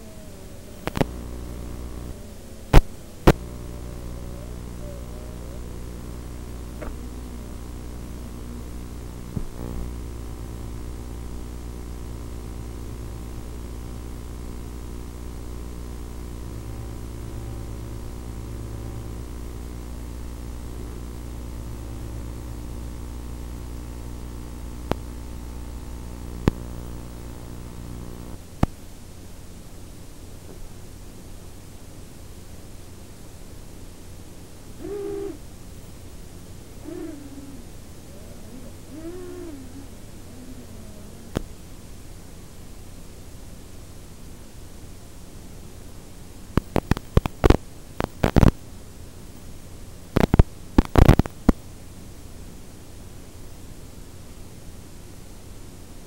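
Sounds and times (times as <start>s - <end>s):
electrical hum: 0.0s - 56.0s
static hiss: 0.0s - 56.0s
sharp clicks: 0.8s - 3.8s, 26.3s - 28.8s, 46.6s - 48.6s, 50.2s - 51.6s.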